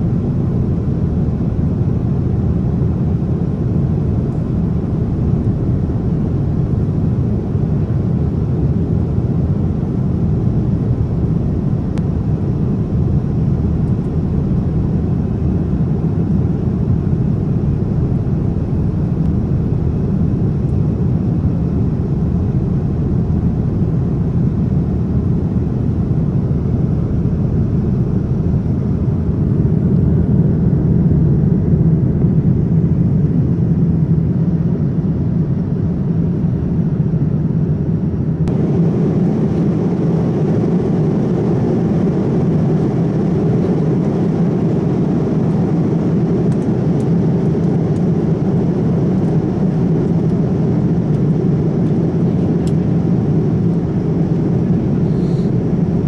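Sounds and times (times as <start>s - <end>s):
airliner cabin rumble: 0.0s - 56.0s.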